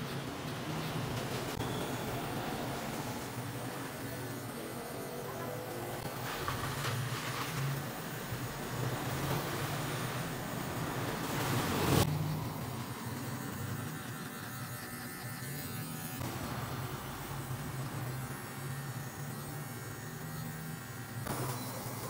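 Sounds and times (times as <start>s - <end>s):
electric hair clipper buzzing: 12.0s - 22.0s.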